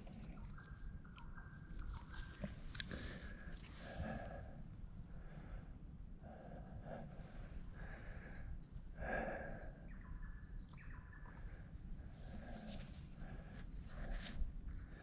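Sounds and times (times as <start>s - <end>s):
person breathing hard: 2.9s - 9.8s.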